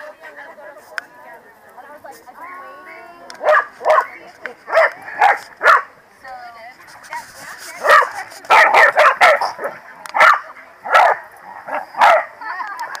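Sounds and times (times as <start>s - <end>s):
dog barking: 3.4s - 4.1s, 4.7s - 5.9s, 7.8s - 12.4s.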